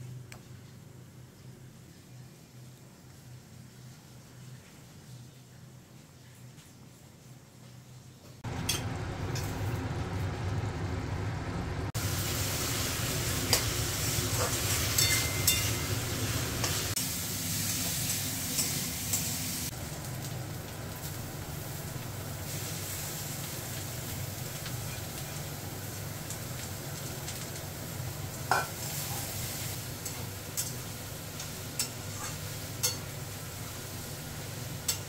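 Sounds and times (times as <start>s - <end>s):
vegetables sizzling: 8.4s - 35.0s.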